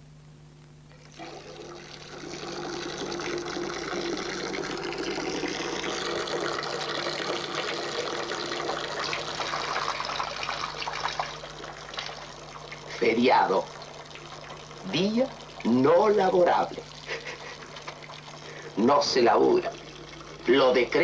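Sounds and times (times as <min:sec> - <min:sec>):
water running into bathtub: 0:01.0 - 0:21.0.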